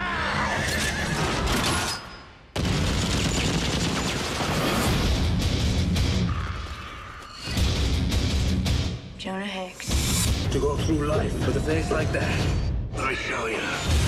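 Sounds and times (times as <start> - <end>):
action trailer music: 4.4 - 6.6, 7.3 - 14.0.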